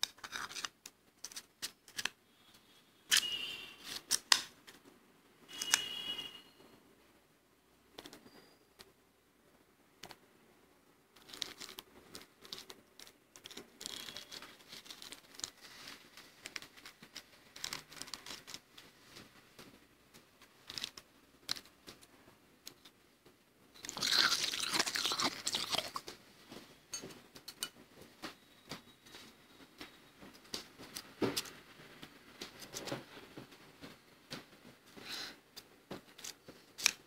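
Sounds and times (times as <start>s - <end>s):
frost being chewed: 23.8s - 26.1s.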